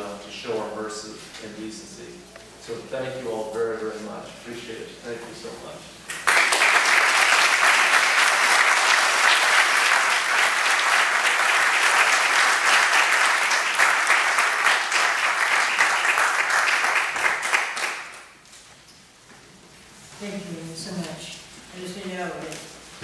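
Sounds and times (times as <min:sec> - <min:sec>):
audience applauding: 0:06.1 - 0:18.3.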